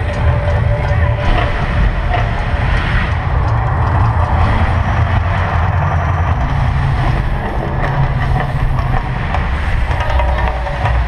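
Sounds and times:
deep rumble: 0.0 - 11.0
rushing wash of noise: 0.0 - 11.0.

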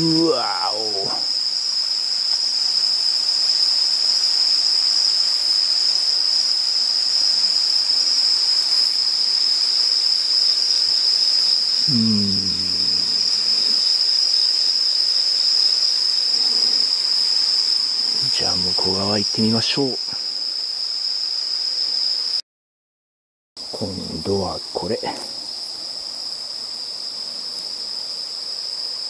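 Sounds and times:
man humming: 0.0 - 1.3, 11.8 - 13.8
faint pulsing insect song: 0.0 - 22.4, 23.6 - 29.0
insects trilling: 0.0 - 22.4, 23.6 - 29.0.

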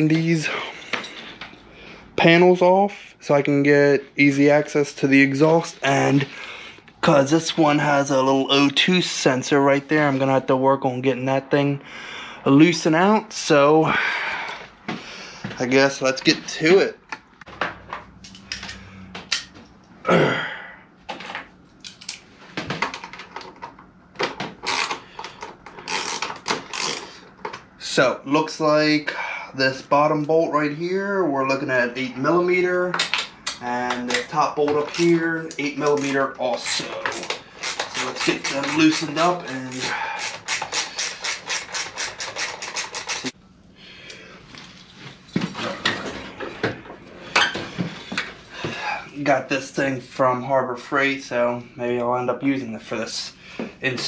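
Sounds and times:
knocks and handling sounds: 21.0 - 27.7.

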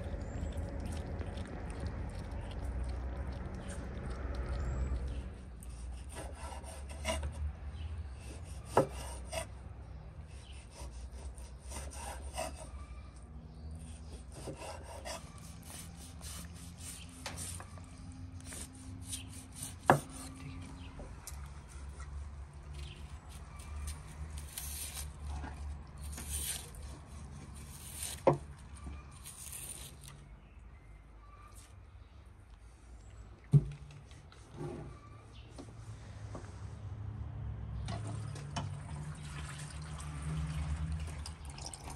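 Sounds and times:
knife slicing meat: 5.7 - 7.3, 10.3 - 12.8, 13.9 - 20.6, 23.2 - 30.1.

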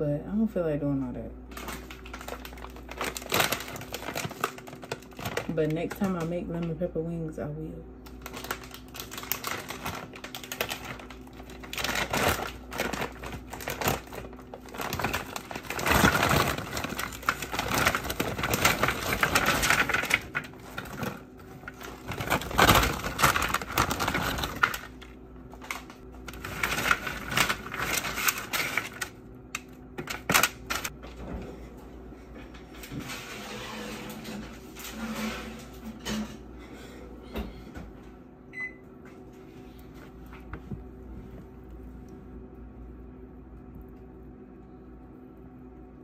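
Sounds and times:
frozen fries clattering: 1.5 - 6.8, 8.0 - 31.0
plastic bag crinkling: 1.5 - 6.8, 8.0 - 31.0.

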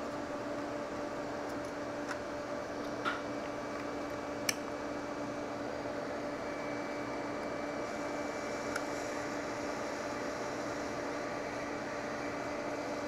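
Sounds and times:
hot air blower: 0.0 - 13.0.

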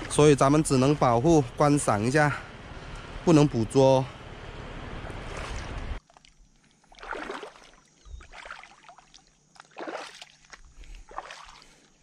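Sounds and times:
footsteps splashing in shallow water: 5.0 - 12.0.

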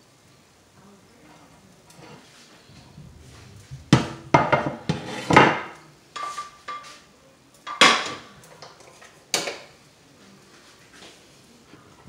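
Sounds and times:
frying pan and utensils clattering: 3.9 - 9.8.

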